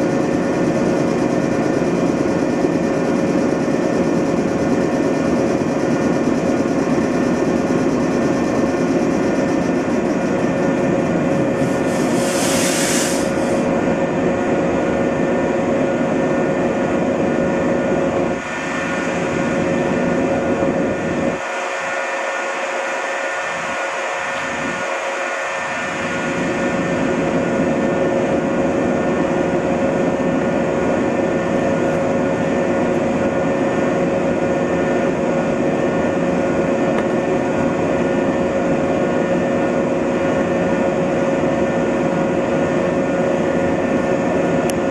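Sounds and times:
train equipment humming: 0.0 - 44.9
compressed air hiss: 11.6 - 13.7.

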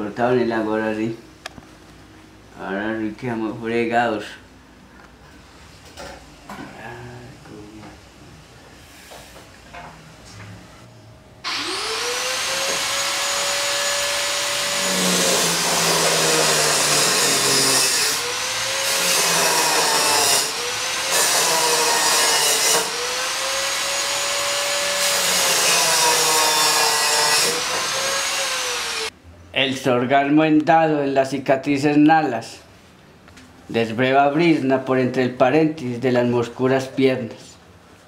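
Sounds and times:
angle grinder grinding metal: 11.5 - 29.1.

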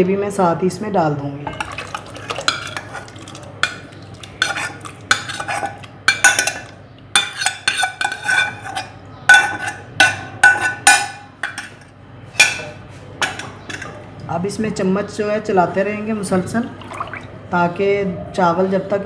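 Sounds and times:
steel spoon scraping a saucepan: 1.6 - 13.9.

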